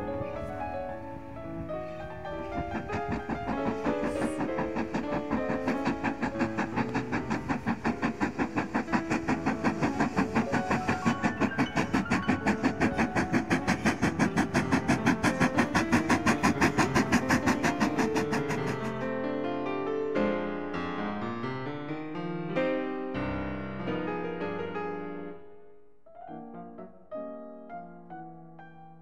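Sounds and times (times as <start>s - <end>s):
music: 0.0s - 29.0s
steam locomotive chuffing: 1.1s - 19.0s.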